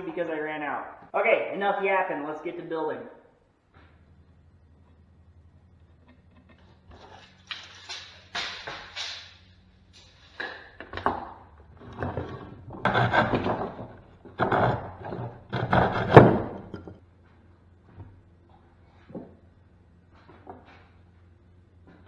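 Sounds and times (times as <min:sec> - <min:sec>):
hand saw cutting bamboo: 0:12.8 - 0:13.7, 0:14.5 - 0:16.6.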